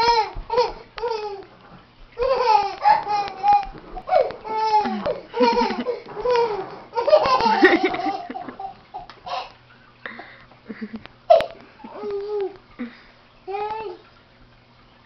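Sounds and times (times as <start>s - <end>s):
child laughing: 2.2s - 9.6s, 10.7s - 12.9s.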